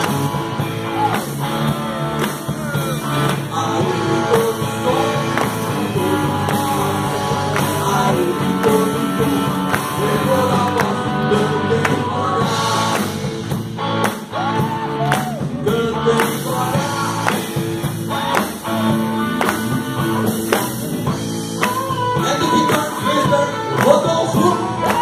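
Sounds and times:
lead singer singing: 0:00.0 - 0:13.5, 0:14.3 - 0:25.0
drum kit beating: 0:00.0 - 0:25.0
electric guitars: 0:00.0 - 0:25.0
rock band playing: 0:00.0 - 0:25.0.

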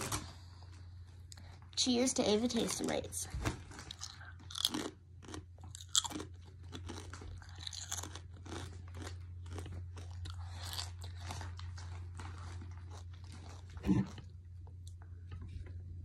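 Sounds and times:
potato chip crunching: 0:03.7 - 0:14.2.

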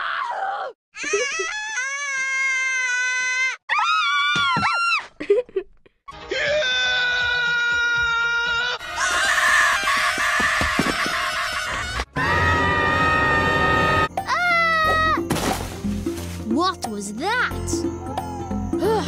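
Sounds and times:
cartoon characters screaming: 0:08.8 - 0:15.2.

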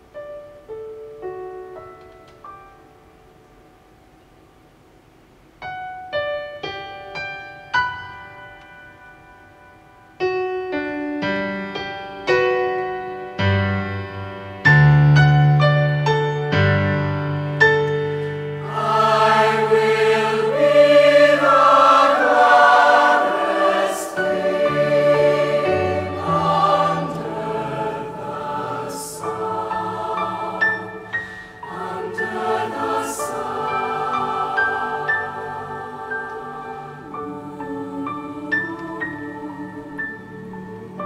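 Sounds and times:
slow piano chords: 0:00.0 - 0:41.0
youth choir singing: 0:18.6 - 0:41.0.

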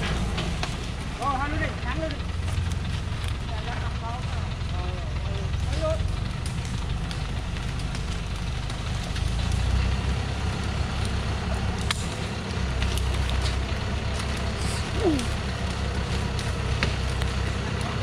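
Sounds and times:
branches snapping under tyres: 0:00.0 - 0:03.4, 0:05.5 - 0:18.0
diesel truck engine running: 0:00.0 - 0:18.0.

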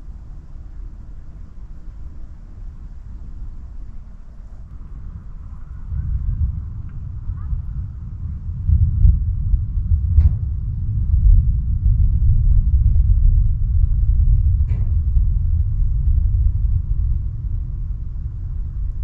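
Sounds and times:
thunder rumbling: 0:04.6 - 0:19.0.

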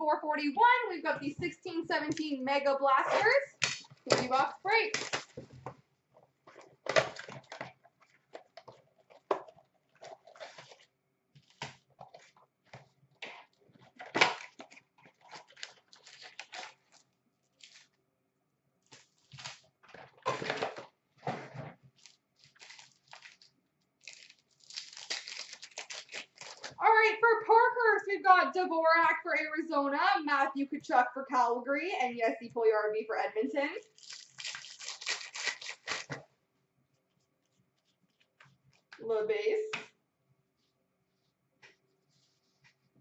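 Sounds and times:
card pack wrappers ripping: 0:14.0 - 0:17.0, 0:22.0 - 0:26.8, 0:33.8 - 0:36.2.

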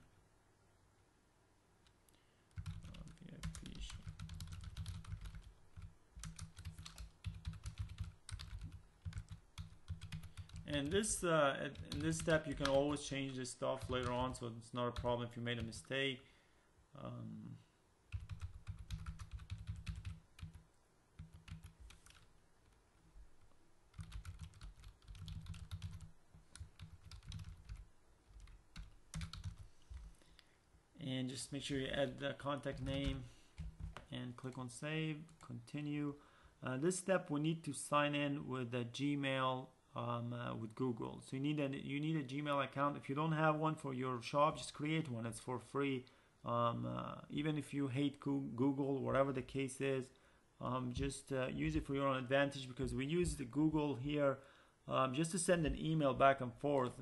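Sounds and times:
typing on computer keyboard: 0:02.5 - 0:11.0, 0:11.7 - 0:12.9, 0:13.8 - 0:14.4, 0:18.1 - 0:20.6, 0:21.2 - 0:22.3, 0:23.9 - 0:30.1, 0:32.7 - 0:34.1.

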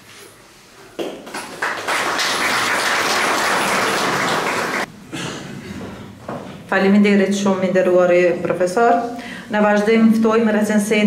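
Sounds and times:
audience applauding: 0:01.0 - 0:04.9.

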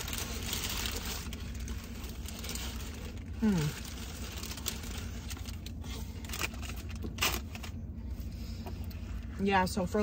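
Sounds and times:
paper wrapper rustles: 0:00.0 - 0:07.8
low steady hum: 0:00.0 - 0:10.0
person humming mm: 0:03.4 - 0:03.8.

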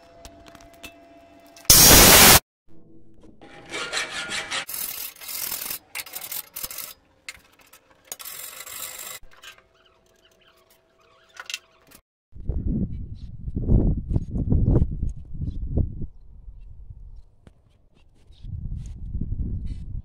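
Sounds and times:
file rasping on steel: 0:03.5 - 0:07.0.

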